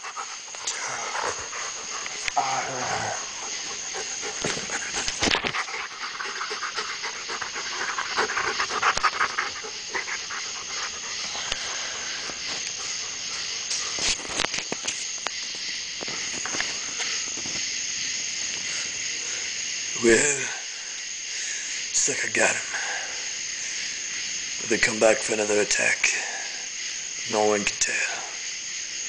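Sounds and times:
dogs scuffling: 3.3 - 17.6.

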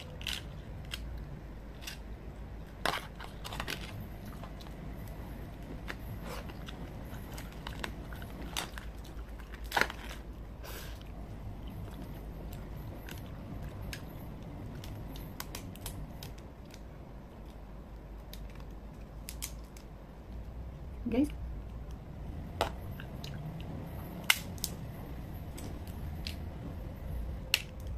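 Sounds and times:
crab shell cracking: 17.5 - 19.9.

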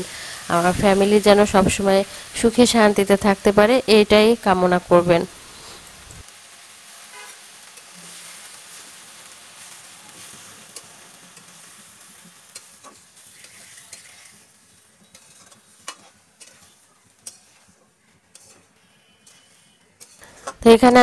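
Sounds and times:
food sizzling in a frying pan: 0.0 - 21.0
spatula stirring: 7.6 - 20.7.

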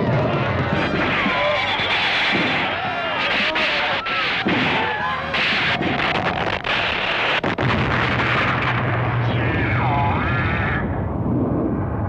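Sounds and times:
people yelling: 0.0 - 7.3
low drone: 4.1 - 12.0.

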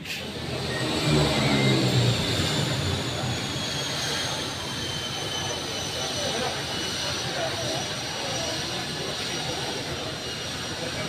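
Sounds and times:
high engine whine falling in pitch: 0.2 - 10.1.

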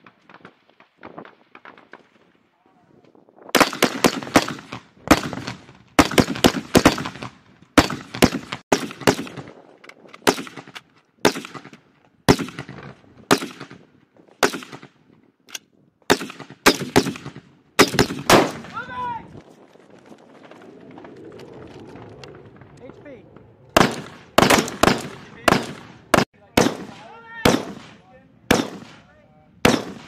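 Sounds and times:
rifle shots with echo: 3.5 - 9.6, 10.2 - 15.0, 16.1 - 18.9, 23.8 - 30.0.

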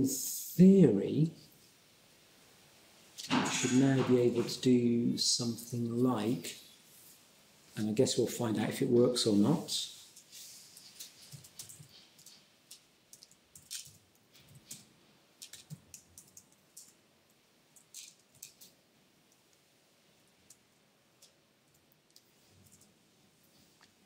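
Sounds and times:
laptop keyboard typing: 10.9 - 14.8, 15.4 - 17.0.

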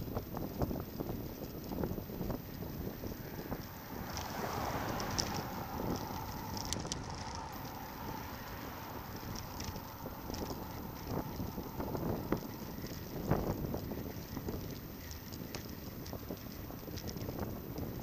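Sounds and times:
bicycle road noise: 0.0 - 18.0
wind rushing over microphone: 0.0 - 18.0
sharp clicks: 4.0 - 7.7.

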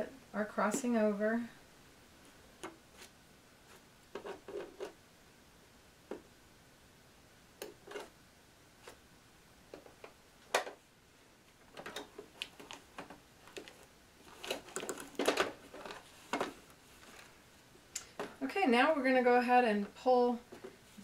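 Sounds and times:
fabric rustling: 12.5 - 17.6.

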